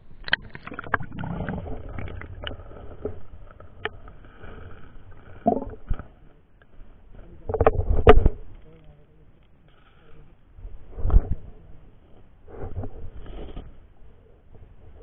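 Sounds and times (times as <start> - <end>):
muffled underwater river rumble: 0.0 - 9.4.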